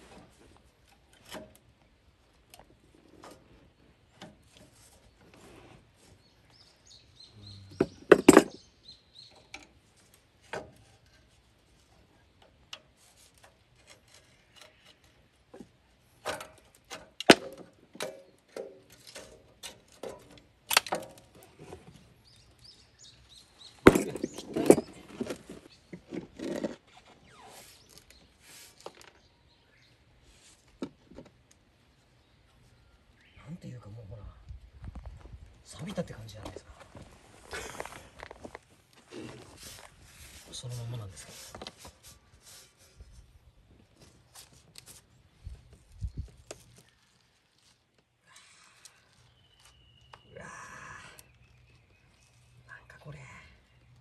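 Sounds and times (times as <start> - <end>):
metal clicks and clanks: 16.2 - 21.4.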